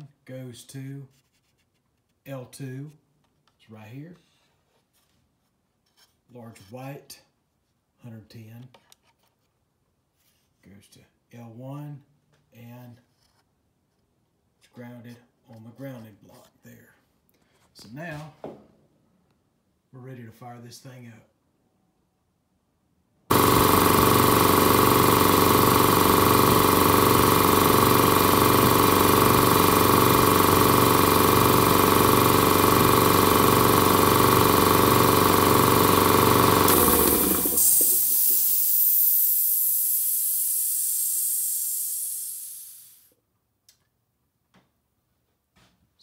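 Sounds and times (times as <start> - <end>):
air compressor running: 23.3 - 43.1
hiss of released air: 36.8 - 43.1.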